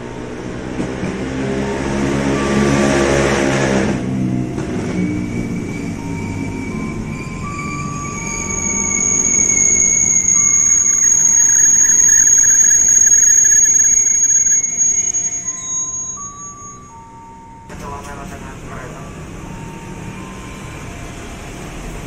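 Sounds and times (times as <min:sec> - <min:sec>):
electric train motor hum and rumble: 0:00.0 - 0:16.5
high-pitched wheel squeal: 0:01.7 - 0:17.2.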